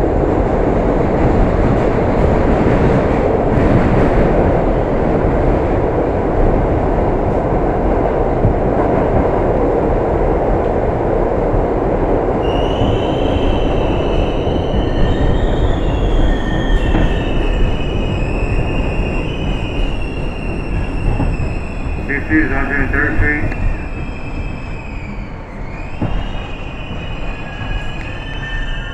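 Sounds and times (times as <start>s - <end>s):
train wheels rumbling: 0.0s - 28.9s
high metallic squeal: 23.7s - 28.9s.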